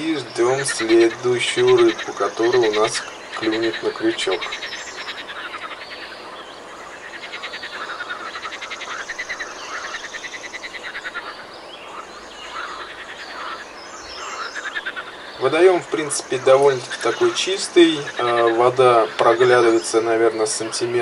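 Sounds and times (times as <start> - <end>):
frogs croaking in chorus: 0.0 - 21.0.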